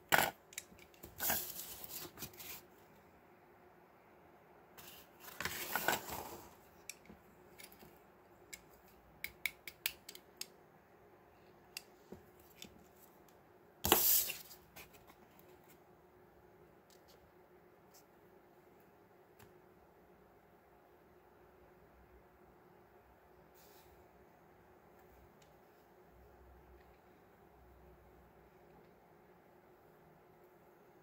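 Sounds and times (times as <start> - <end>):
cardboard rustling and scraping: 1.0 - 2.7, 4.8 - 6.6.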